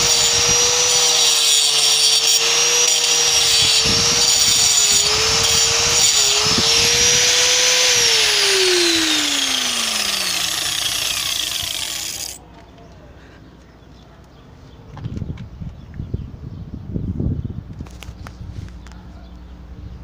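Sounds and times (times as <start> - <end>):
angle grinder cutting concrete: 0.0 - 12.4
grinder disc winding down: 0.0 - 12.4.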